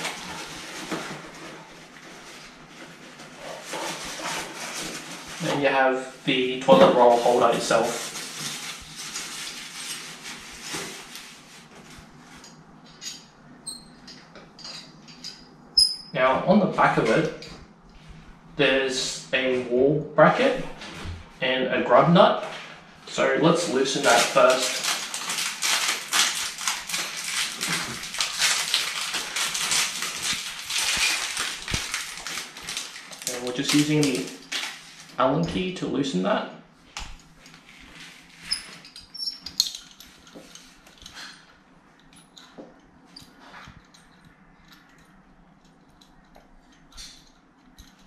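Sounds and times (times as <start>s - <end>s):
packaging rustling: 0.0s - 5.6s, 6.8s - 12.4s, 23.7s - 35.2s.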